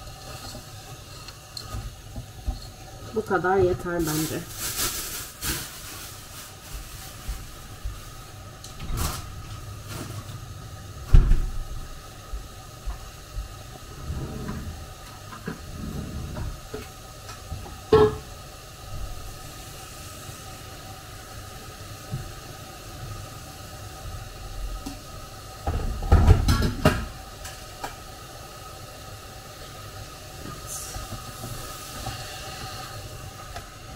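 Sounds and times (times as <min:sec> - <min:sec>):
kitchen items knocking and clattering: 0:25.7 - 0:27.1.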